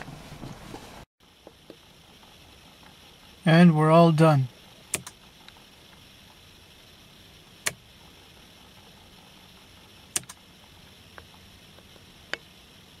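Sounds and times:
faint hiss: 0:00.1 - 0:13.0
sharp clicks: 0:04.9 - 0:05.6, 0:10.1 - 0:10.4.

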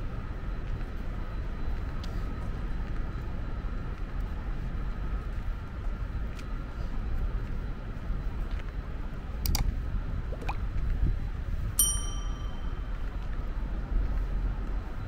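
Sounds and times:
low traffic rumble: 0:00.0 - 0:15.0
sharp clicks: 0:09.5 - 0:09.7
high ringing ping: 0:11.8 - 0:13.0.

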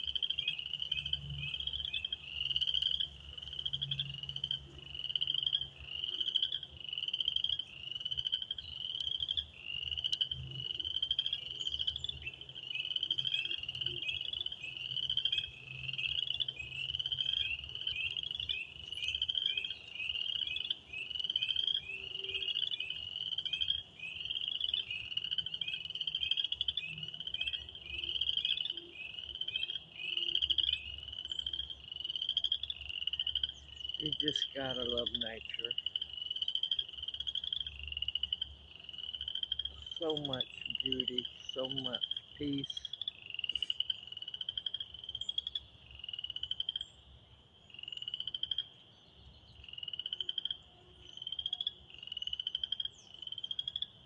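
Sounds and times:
lower frog call: 0:00.0 - 0:46.9
frogs calling high: 0:00.0 - 0:54.0.

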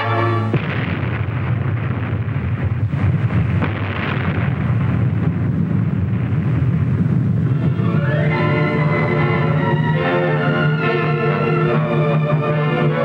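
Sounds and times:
sharp cracks: 0:00.5 - 0:07.6
explosion low rumble: 0:00.5 - 0:10.4.

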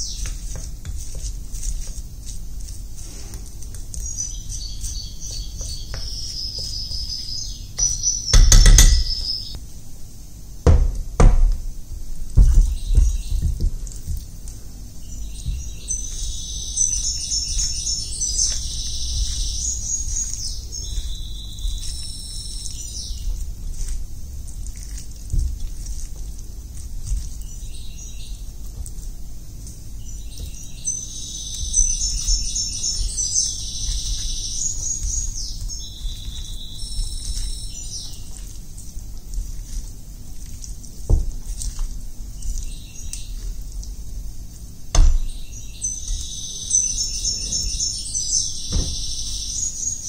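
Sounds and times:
sharp thumps and knocks: 0:07.8 - 0:09.4, 0:10.6 - 0:11.7, 0:12.3 - 0:14.3, 0:48.7 - 0:49.1.

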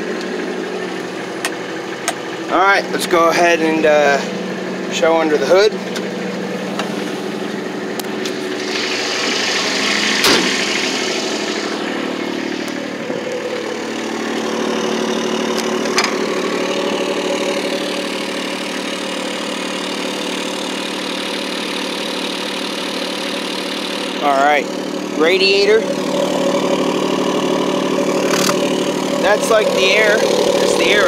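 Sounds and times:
diesel engine idling: 0:00.0 - 0:31.0
sharp knock: 0:10.2 - 0:10.6.

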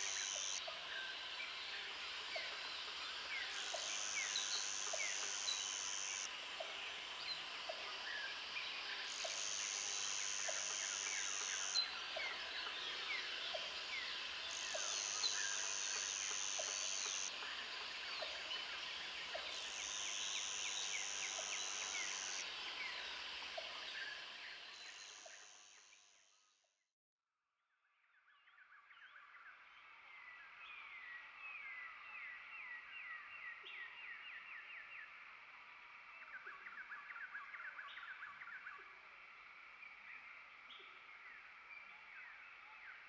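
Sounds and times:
high pulsing buzz: 0:00.0 - 0:00.6, 0:19.1 - 0:26.0.

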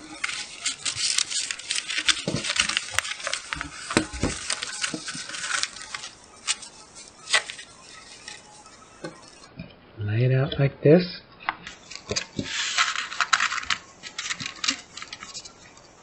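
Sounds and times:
plastic sheet and paper crinkling: 0:00.0 - 0:09.5, 0:11.7 - 0:16.0.

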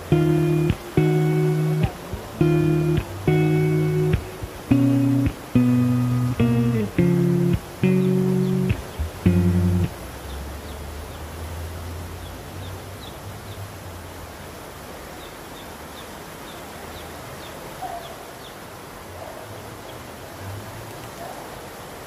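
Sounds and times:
small birds chirping: 0:00.0 - 0:11.2.

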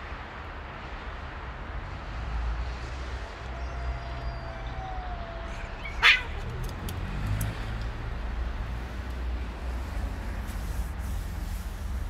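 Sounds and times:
traffic rumble: 0:00.0 - 0:12.0
cat yowling: 0:03.5 - 0:06.9.

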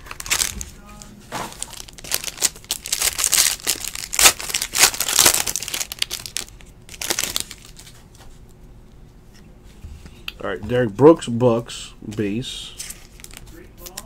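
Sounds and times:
foil wrapper crinkling: 0:00.0 - 0:08.1, 0:12.8 - 0:14.0.

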